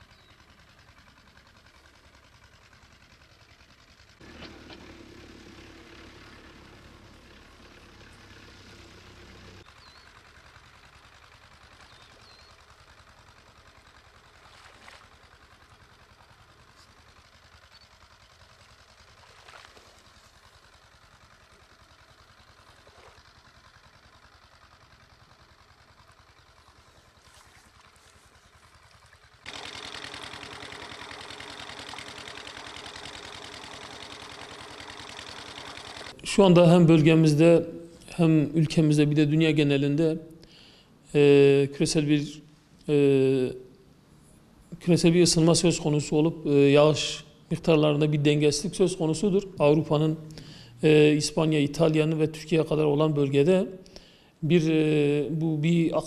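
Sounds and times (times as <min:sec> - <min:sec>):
low engine hum: 0:00.0 - 0:56.0.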